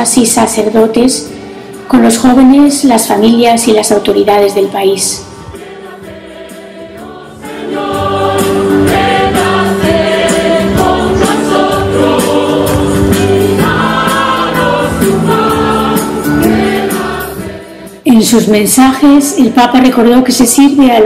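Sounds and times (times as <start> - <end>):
choir singing sustained chords: 1.2 - 2.9, 3.8 - 18.1.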